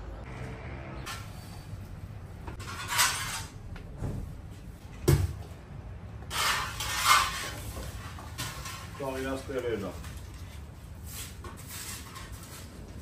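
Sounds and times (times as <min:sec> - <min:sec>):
rustling and scraping: 0:02.5 - 0:04.8, 0:06.2 - 0:13.0.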